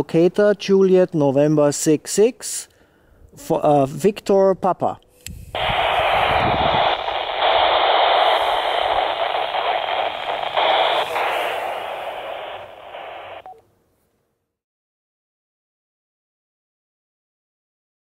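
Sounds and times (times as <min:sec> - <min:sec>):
radio receiver hiss: 0:05.3 - 0:13.6.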